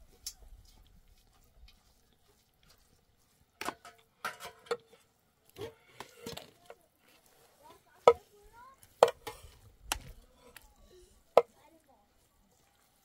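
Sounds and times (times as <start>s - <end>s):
wooden spatula scraping metal pot: 1.6s - 11.9s.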